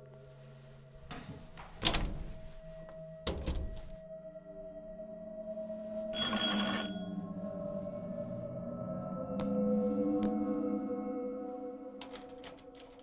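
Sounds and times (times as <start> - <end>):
low musical drone: 0.0 - 6.2, 7.1 - 13.0
electric doorbell buzzer: 6.2 - 7.1.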